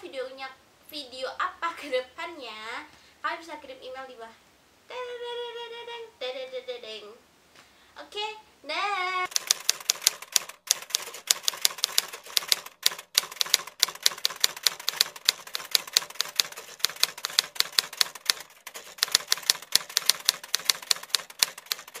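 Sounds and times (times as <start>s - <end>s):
typewriter keys clacking: 9.3s - 22.0s.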